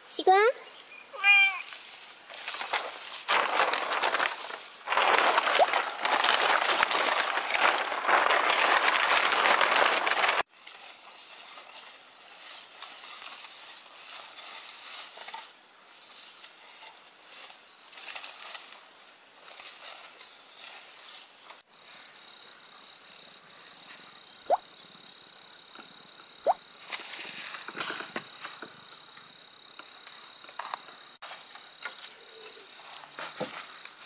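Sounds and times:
straw and plastic rustling: 0:00.7 - 0:21.6, 0:26.8 - 0:28.7, 0:30.1 - 0:34.0.

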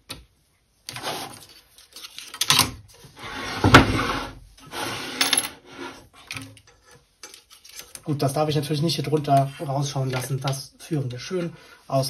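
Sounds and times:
hands scraping and rustling cables: 0:00.8 - 0:03.2, 0:05.8 - 0:11.5.

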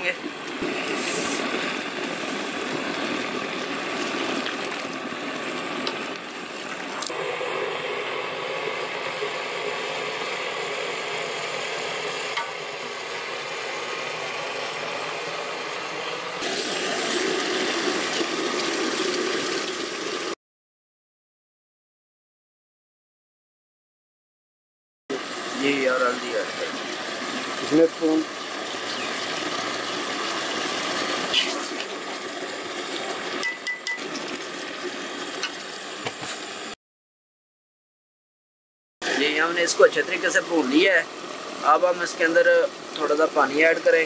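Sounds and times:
paste sizzling in a pot: 0:00.6 - 0:15.3, 0:16.3 - 0:20.2.

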